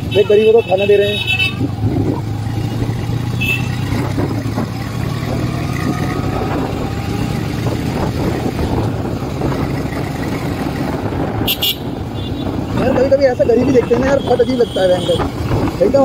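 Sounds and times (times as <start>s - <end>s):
motorcycle engine running: 0.0s - 16.0s
road noise: 0.0s - 16.0s.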